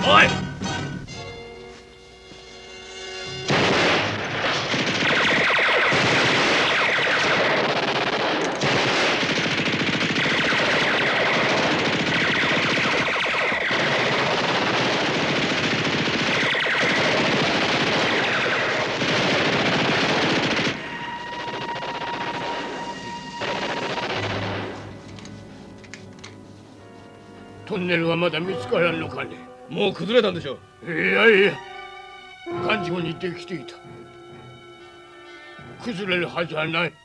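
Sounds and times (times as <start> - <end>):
automatic gunfire: 3.5 - 24.8.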